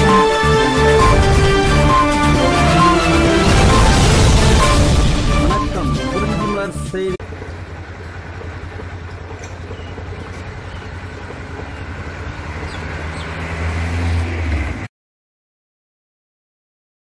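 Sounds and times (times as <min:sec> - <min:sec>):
highway traffic rumble: 0:07.2 - 0:14.9.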